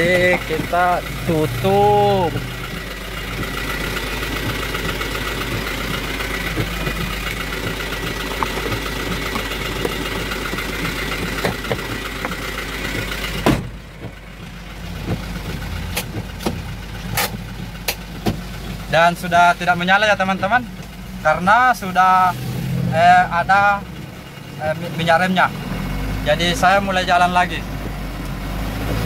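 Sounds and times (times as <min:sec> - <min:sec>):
diesel engine idling: 0:00.0 - 0:29.0
plastic panel knocks: 0:04.4 - 0:16.7.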